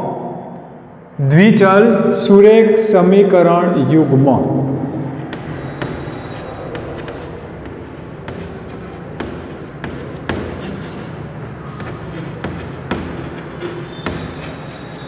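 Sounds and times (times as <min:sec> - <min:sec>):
chalk tapping on chalkboard: 0:05.2 - 0:15.0.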